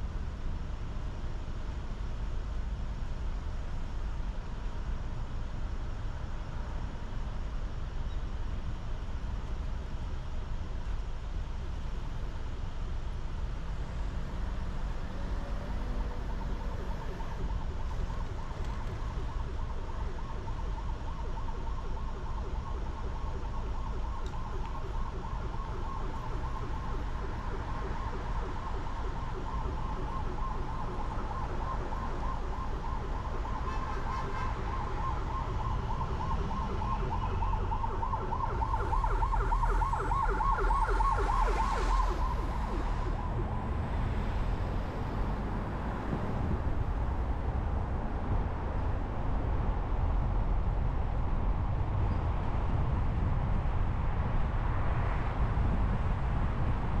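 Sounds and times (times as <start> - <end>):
low traffic rumble: 0.0 - 57.0
warbling siren: 14.4 - 47.4.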